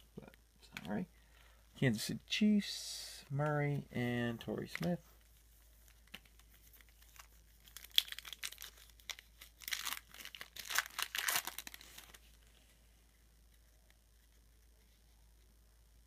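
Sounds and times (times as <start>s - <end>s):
foil wrapper tearing and crinkling: 5.9s - 12.3s.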